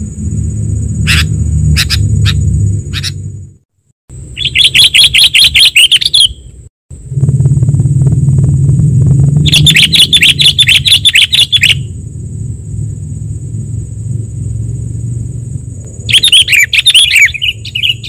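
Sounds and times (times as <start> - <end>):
thin high whine: 0.0 - 4.3, 6.9 - 18.0
low rumble: 0.0 - 4.4, 6.9 - 18.0
bird fast chattering: 1.1 - 3.2, 4.4 - 6.4, 9.4 - 11.9, 16.1 - 18.0.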